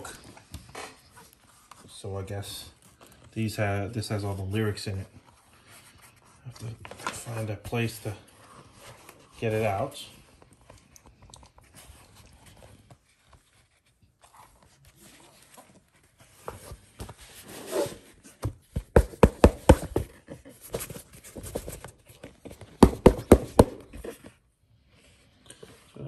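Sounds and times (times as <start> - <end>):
book scraping in box: 12.2 - 18.3
knocks and thumps of board: 18.7 - 20.2, 22.7 - 24.0.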